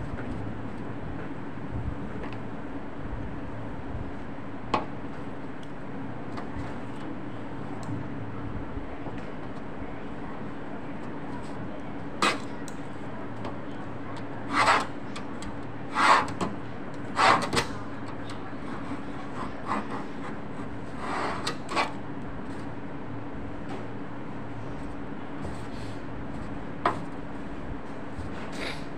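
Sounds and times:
steady hum: 0.0 - 28.9.

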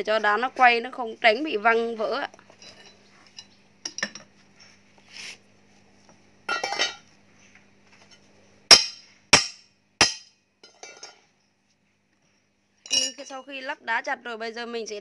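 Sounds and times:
light metallic clinks and rattles: 2.5 - 4.3, 12.8 - 13.5
ringing metal strikes: 8.7 - 10.8.

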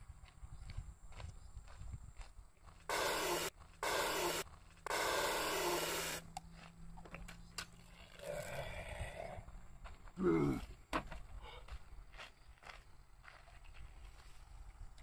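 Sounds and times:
aerosol spray can hissing: 2.9 - 6.2.

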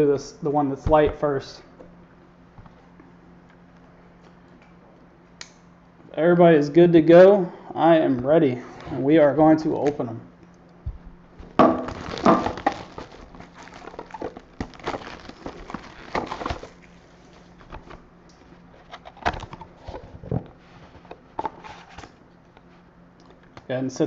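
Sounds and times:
cardboard box handled: 11.9 - 16.8.

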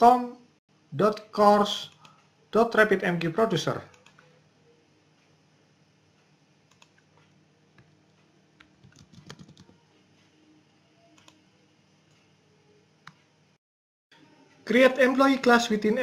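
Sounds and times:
faint steady hum: 0.0 - 13.6, 14.2 - 16.0
keyboard typing: 3.9 - 4.4, 6.7 - 8.0, 8.6 - 9.8, 11.1 - 11.4
mouse clicks: 6.7 - 7.9, 11.2 - 11.4.

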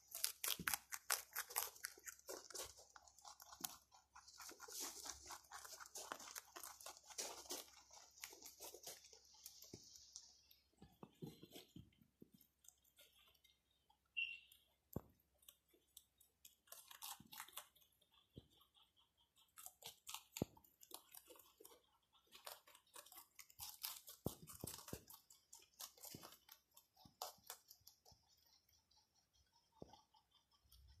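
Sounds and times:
rabbits crunching vegetables: 0.0 - 31.0
brief high squeak: 14.2 - 14.6.

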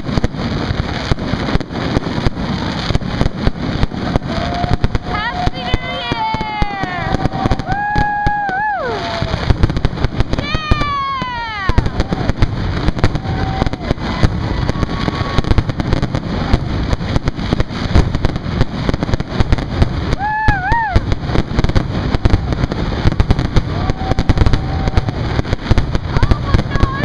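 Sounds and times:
fireworks bangs and crackles: 0.0 - 27.0.

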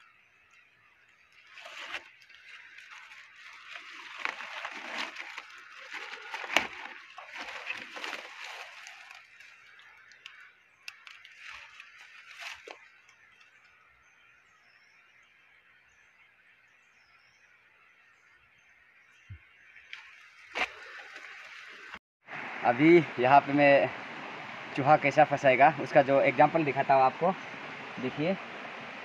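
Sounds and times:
dry leaves rustling and crackling: 1.2 - 13.6
sticks snapping: 4.0 - 9.2.

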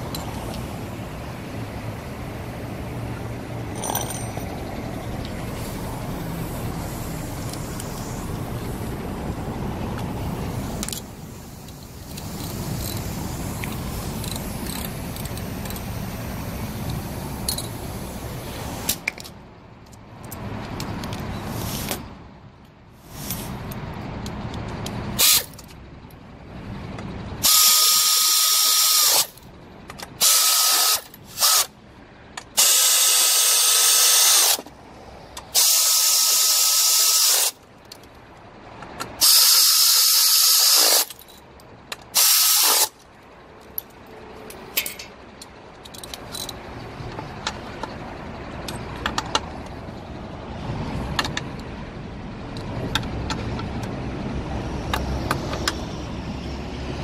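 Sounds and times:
power ratchet hiss and whine: 27.4 - 29.4, 30.2 - 31.7, 32.6 - 34.6, 35.6 - 37.6, 39.2 - 41.1, 42.2 - 43.0.

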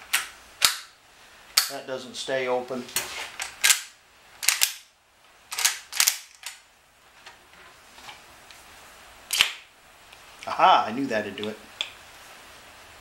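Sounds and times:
rifle actions clacking: 3.4 - 4.9, 5.5 - 6.6.

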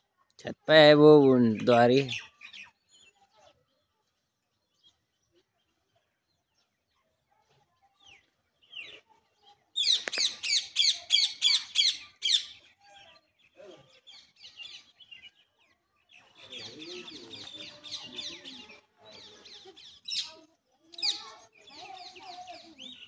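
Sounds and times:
bird chirping: 9.8 - 23.0.

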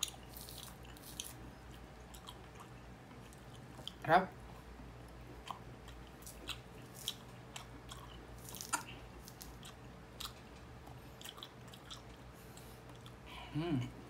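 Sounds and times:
person chewing orange: 0.0 - 13.3.

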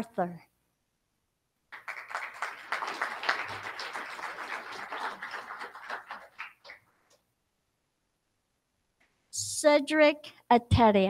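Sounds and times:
audience applauding: 1.7 - 7.0.

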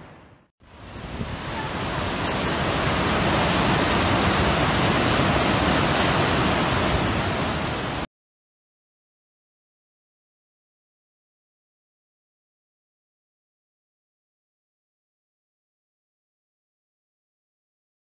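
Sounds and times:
stream rushing: 0.0 - 8.1.

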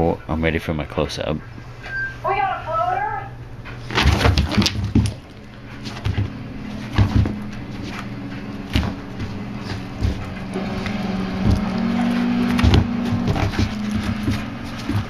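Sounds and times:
steady low hum: 0.0 - 15.0
dog scuffling against camera: 3.7 - 15.0.

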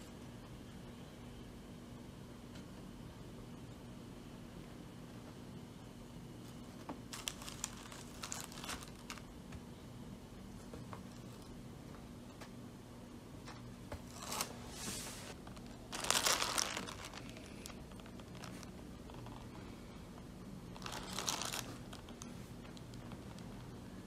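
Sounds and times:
plastic wrapping crinkling: 7.1 - 9.3, 14.1 - 19.6, 20.7 - 23.8.

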